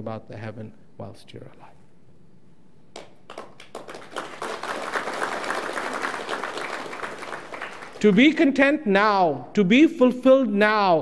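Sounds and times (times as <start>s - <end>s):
audience applause: 3.3s - 8.1s.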